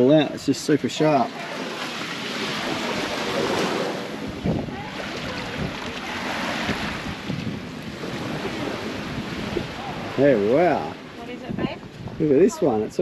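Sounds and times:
ocean surf on rocky shore: 0.0s - 13.0s
wind buffeting microphone: 1.6s - 13.0s.

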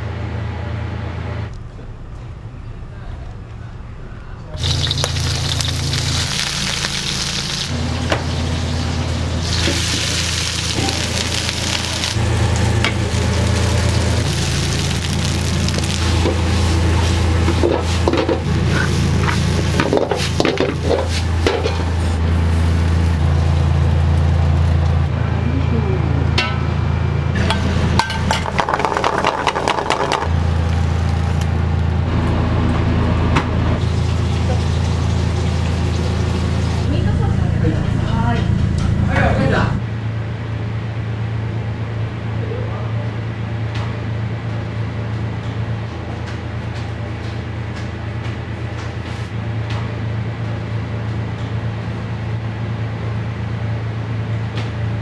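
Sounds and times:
low kitchen hum: 0.0s - 55.0s
food sizzling in frying pans: 4.6s - 24.0s, 33.8s - 36.9s
pans and utensils clanking: 17.0s - 22.0s, 27.4s - 30.3s.

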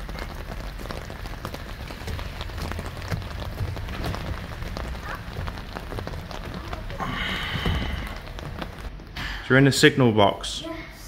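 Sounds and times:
rain on an umbrella: 0.0s - 9.4s.

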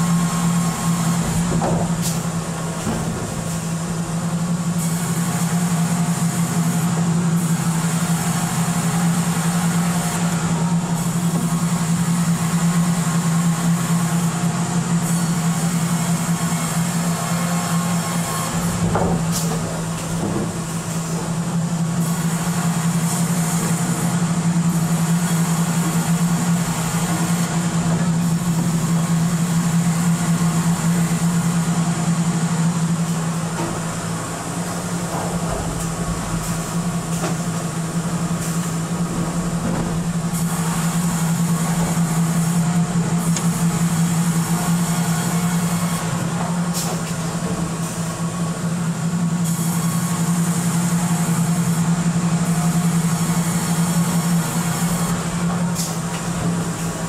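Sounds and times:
machinery humming: 0.0s - 57.0s
knocks and clanks: 1.3s - 4.0s, 18.6s - 21.4s, 33.4s - 42.0s.

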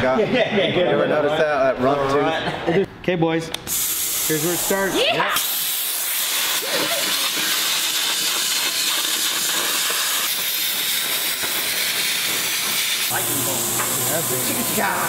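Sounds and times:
plasma cutter hissing: 3.7s - 15.0s.

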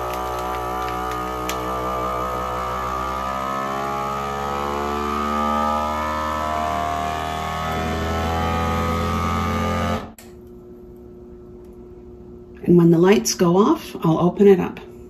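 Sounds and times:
vacuum sealer pump humming: 0.0s - 10.2s.

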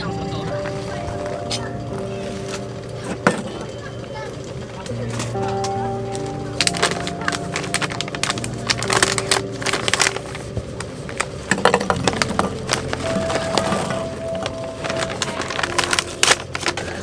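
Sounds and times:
plastic snack bag crinkling: 6.0s - 17.0s.

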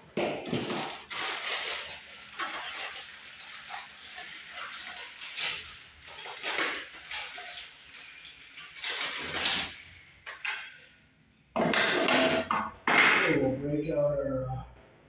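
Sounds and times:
plastic packaging crinkling: 0.5s - 10.7s.

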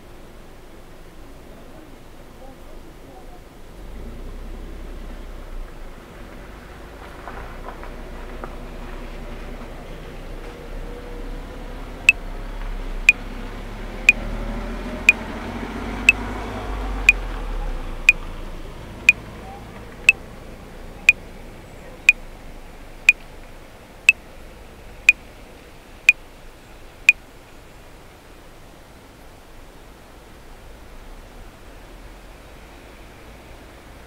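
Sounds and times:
low rumble and hiss: 0.0s - 34.0s
metronome clicking: 17.1s - 17.3s.

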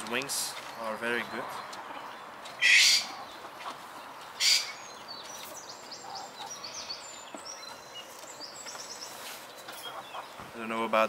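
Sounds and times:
birds chirping: 0.0s - 11.0s
rustle of feathers: 8.0s - 9.8s.

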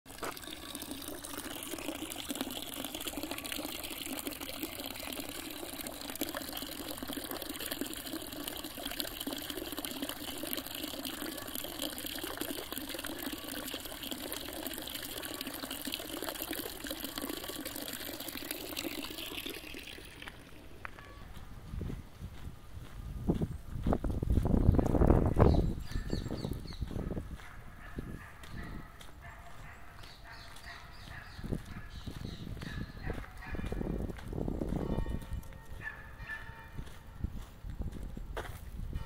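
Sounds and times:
fountain water splashing into basin: 0.1s - 21.0s.

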